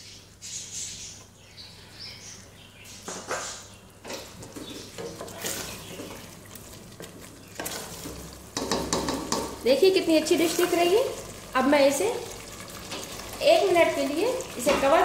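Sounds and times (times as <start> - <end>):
spoon stirring thick gravy: 4.0 - 9.6.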